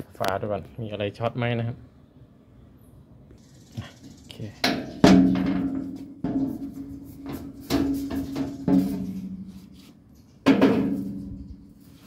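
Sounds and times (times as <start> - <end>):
sheet metal panel clanking: 4.6 - 9.5, 10.4 - 11.6.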